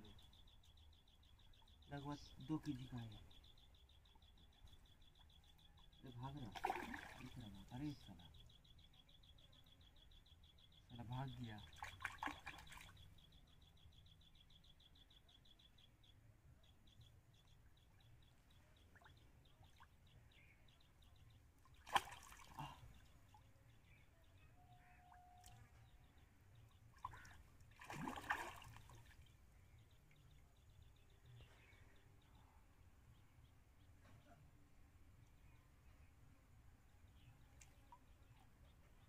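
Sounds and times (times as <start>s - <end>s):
water splashes: 6.4s - 7.6s, 11.7s - 13.0s, 21.8s - 22.8s, 27.0s - 29.3s.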